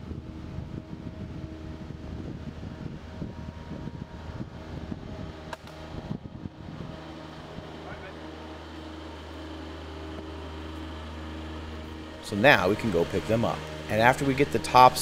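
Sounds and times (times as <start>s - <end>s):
loader engine running: 0.0s - 15.0s.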